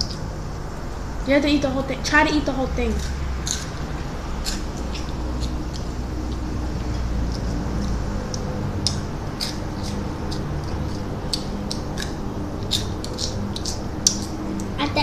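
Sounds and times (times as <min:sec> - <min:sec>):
steady low hum: 0:00.0 - 0:15.0
crunchy snack being chewed: 0:03.0 - 0:14.8.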